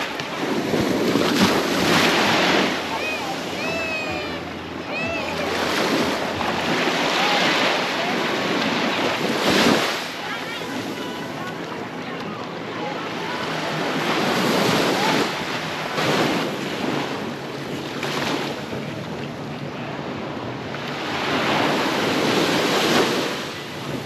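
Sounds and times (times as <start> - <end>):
wind buffeting microphone: 0.0 - 12.0
sea waves breaking on beach: 0.0 - 24.0.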